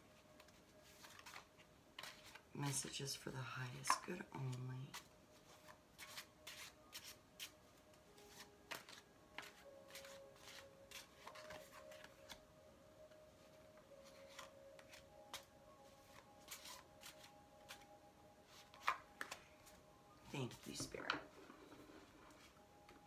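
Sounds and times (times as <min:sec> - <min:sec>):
cards shuffled and laid down: 0:00.4 - 0:02.5, 0:03.8 - 0:07.5, 0:08.2 - 0:12.4, 0:14.0 - 0:17.9, 0:18.5 - 0:19.7.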